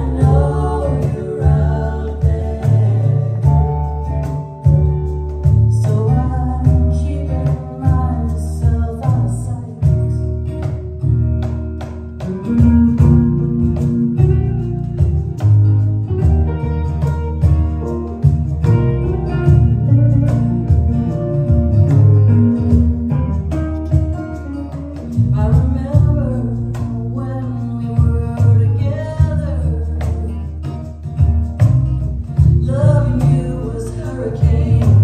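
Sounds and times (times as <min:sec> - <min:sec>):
women singing: 0:00.0 - 0:04.1, 0:05.6 - 0:10.2, 0:25.3 - 0:30.5, 0:32.6 - 0:35.0
live band playing: 0:00.0 - 0:35.0
strummed acoustic guitars: 0:00.0 - 0:35.0.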